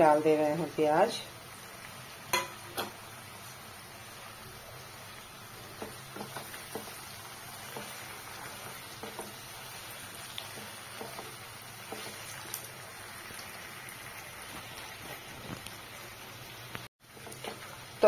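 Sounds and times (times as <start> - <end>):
frying hiss: 0.0 - 18.0
spatula tapping and scraping pan: 2.3 - 3.0, 5.7 - 7.0, 7.6 - 9.4, 10.4 - 12.3.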